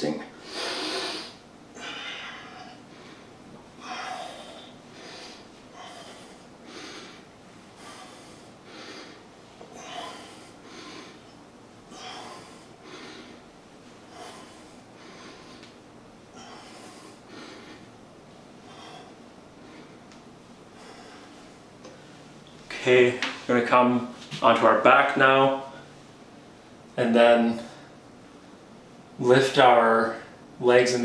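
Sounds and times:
forceful nasal exhales: 0.4 - 2.5
man breathing hard: 0.4 - 17.9, 18.6 - 20.0, 20.7 - 22.2.

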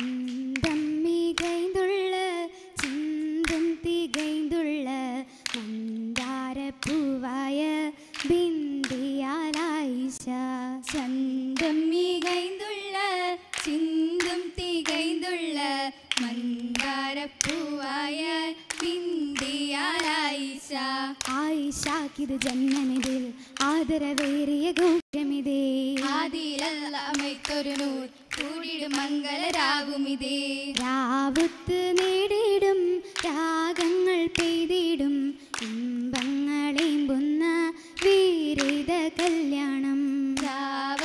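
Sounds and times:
sharp hand claps: 0.0 - 1.8, 2.8 - 4.5, 5.4 - 7.2, 8.0 - 9.8, 10.9 - 12.7, 13.4 - 15.3, 16.0 - 17.8, 18.6 - 20.3, 21.2 - 25.0, 26.0 - 29.8, 30.7 - 34.8, 35.5 - 37.2, 38.0 - 39.6, 40.4 - 41.0
women singing without instruments: 0.0 - 41.0.

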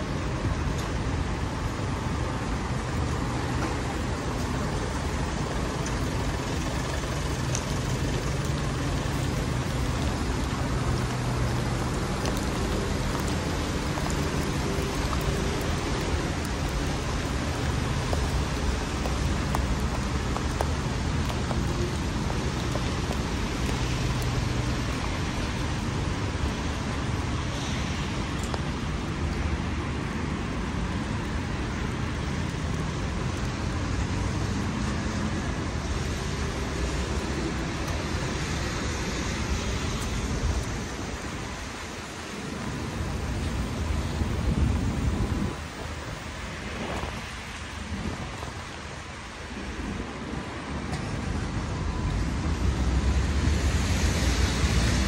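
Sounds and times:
low engine hum of traffic: 0.0 - 55.0
steady rain: 0.0 - 55.0
tyres on wet road: 0.0 - 55.0
small drips: 5.6 - 29.4.

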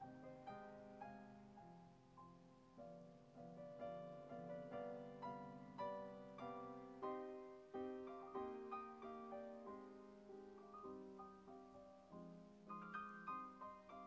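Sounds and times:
quiet piano music: 0.0 - 14.0.

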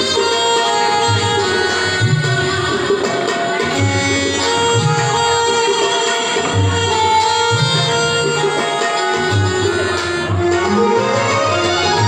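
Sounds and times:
tabla bass drum strokes: 0.0 - 12.0
electronic keyboard melody: 6.8 - 12.0.

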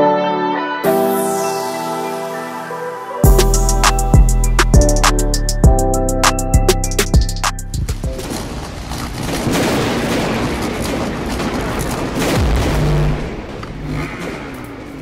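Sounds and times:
crackling noise rush: 6.3 - 15.0
heavy boom: 12.2 - 14.6.

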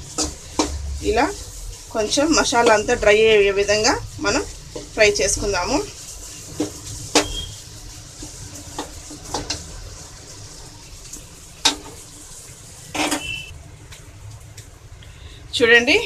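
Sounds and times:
metal spoon scraping pan: 0.0 - 9.7
food sizzling in pan: 0.0 - 14.9.

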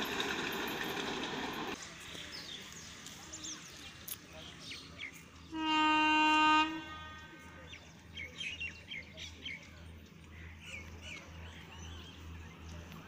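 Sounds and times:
train horn: 5.5 - 7.7.

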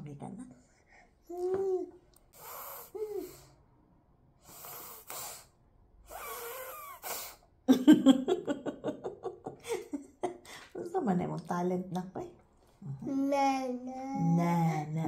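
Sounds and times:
baby breathy puffs and snorts: 2.3 - 3.6, 4.4 - 5.5, 6.1 - 7.4.

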